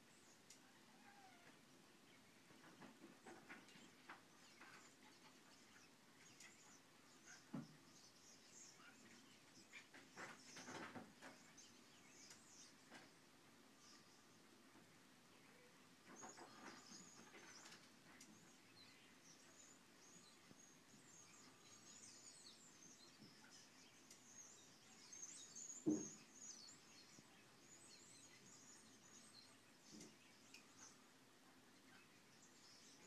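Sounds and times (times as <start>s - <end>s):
robins calling: 0.2s - 2.4s
soft thump: 25.8s - 26.1s.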